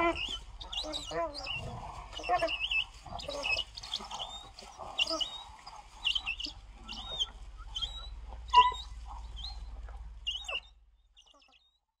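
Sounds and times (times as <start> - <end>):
wild dogs chirping squeaks: 0.0 - 11.8.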